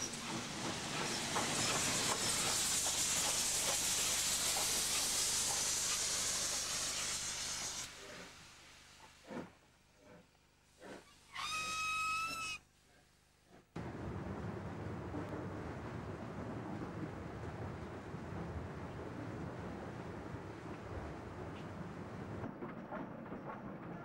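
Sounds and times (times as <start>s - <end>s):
steam locomotive hissing: 0.0s - 12.5s.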